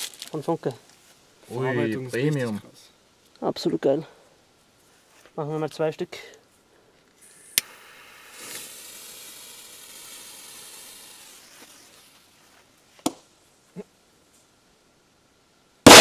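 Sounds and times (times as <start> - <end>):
firecracker fuse hissing: 7.2 - 12.7.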